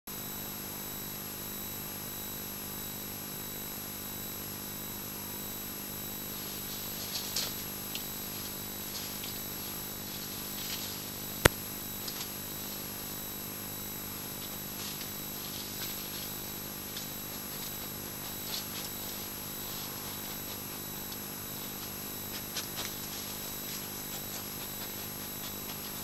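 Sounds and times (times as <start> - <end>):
electrical hum and hiss: 0.1 - 26.0
rustling through plants: 6.2 - 26.0
sharp click: 11.4 - 11.7.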